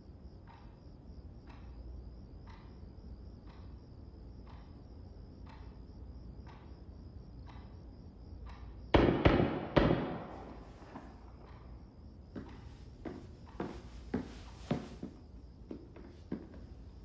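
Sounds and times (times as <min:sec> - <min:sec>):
clock ticking: 0:00.1 - 0:08.9
loud heavy echoing bangs: 0:08.9 - 0:11.0.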